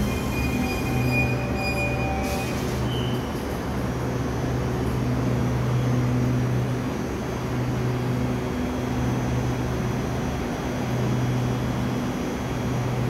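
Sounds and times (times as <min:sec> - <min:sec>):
electric train humming: 0:00.0 - 0:13.0.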